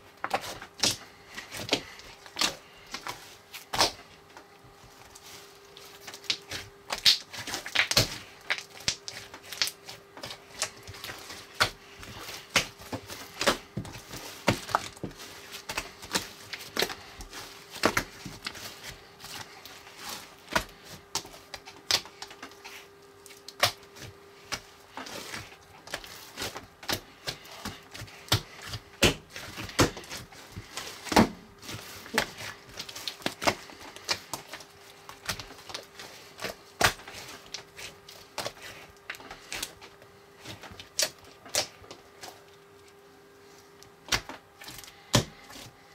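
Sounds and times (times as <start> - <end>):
foam slime crackling: 5.0 - 39.8.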